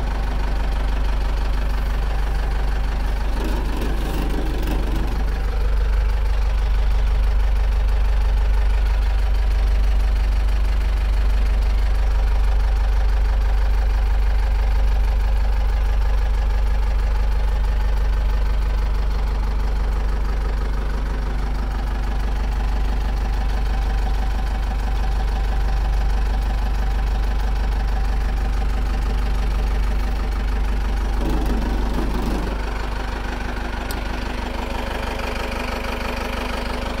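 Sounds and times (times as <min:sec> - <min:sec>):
diesel engine idling: 0:00.0 - 0:37.0
bump: 0:31.1 - 0:32.8.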